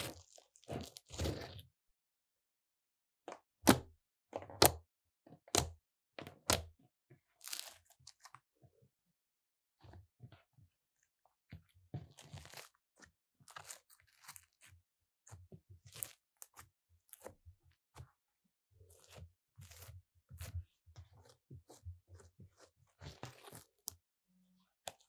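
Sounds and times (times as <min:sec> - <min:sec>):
slime squelching: 0:00.0 - 0:01.6, 0:13.4 - 0:14.7, 0:18.9 - 0:24.0.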